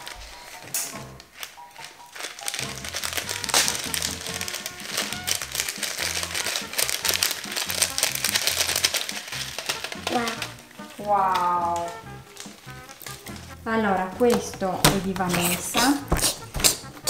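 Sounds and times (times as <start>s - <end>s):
plastic bag of beads crinkling: 0.0s - 13.6s
background music: 0.0s - 17.0s.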